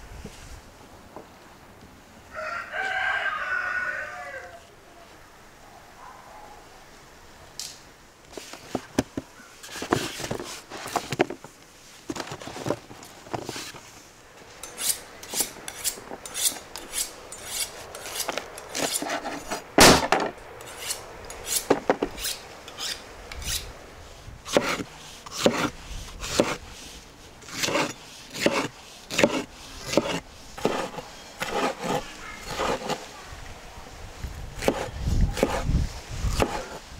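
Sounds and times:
knife scraping on honing steel: 14.6s - 19.7s, 20.6s - 23.7s, 24.5s - 26.6s, 27.4s - 33.1s, 34.6s - 35.7s, 36.3s - 36.8s
knife chopping on wooden board: 24.5s - 25.7s.

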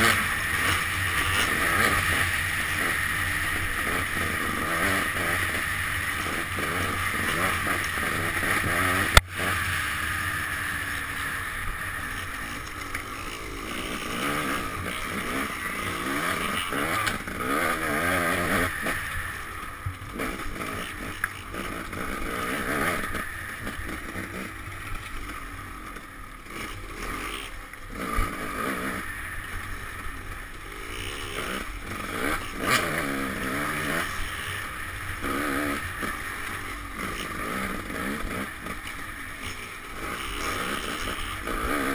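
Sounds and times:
dirt bike engine revving: 0.0s - 41.9s.

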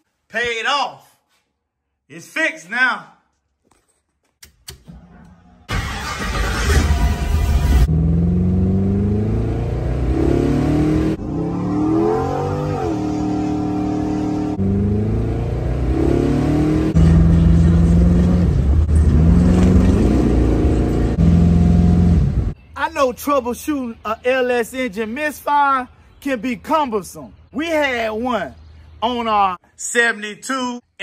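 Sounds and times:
car engine revving: 5.7s - 22.6s.

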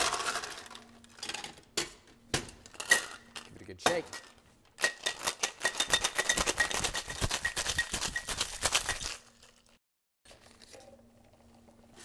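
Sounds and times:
ice rattling in cocktail shaker: 4.8s - 9.8s.

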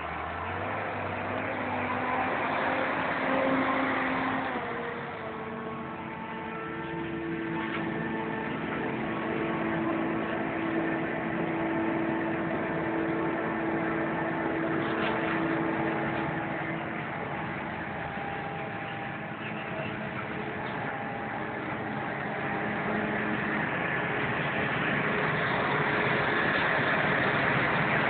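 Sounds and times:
tractor engine passing: 0.0s - 28.0s.

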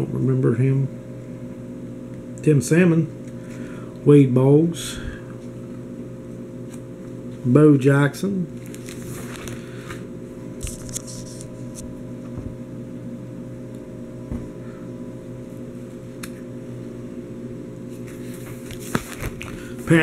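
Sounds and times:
low electrical hum: 0.0s - 20.0s
plastic sleeves rustling: 8.6s - 11.8s, 17.9s - 20.0s.

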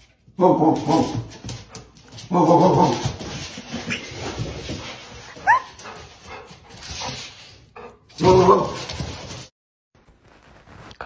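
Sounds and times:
dog whimpering: 5.4s - 5.8s
dog yelping: 5.4s - 5.8s.

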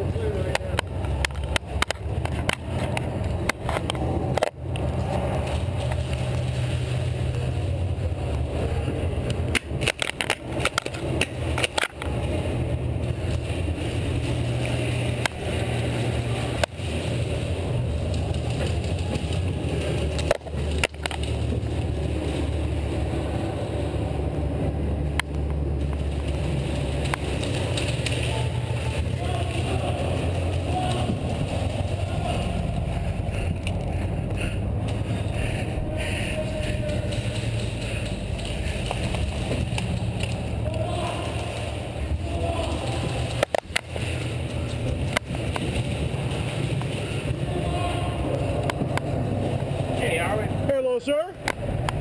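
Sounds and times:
footsteps: 0.0s - 24.0s, 25.1s - 50.0s
steady low rumble: 0.0s - 52.0s
gear knocks and clicks: 9.2s - 12.4s.

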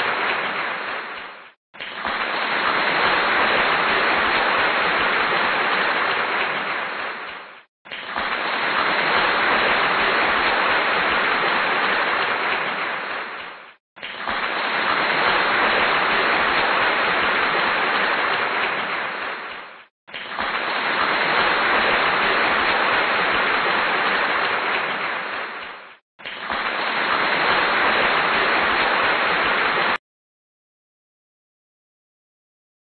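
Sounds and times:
crowd applauding: 2.0s - 7.2s, 20.4s - 25.3s.

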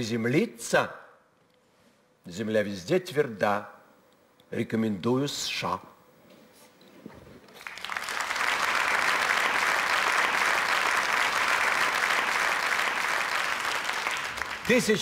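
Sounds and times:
audience applauding: 7.5s - 15.0s.

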